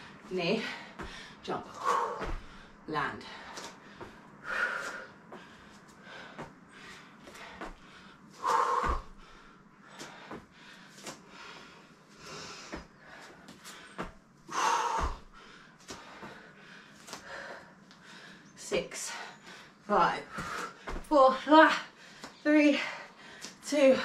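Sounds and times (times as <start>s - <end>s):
feet thudding on mat: 1.9s - 2.7s, 7.3s - 9.4s, 14.0s - 16.4s.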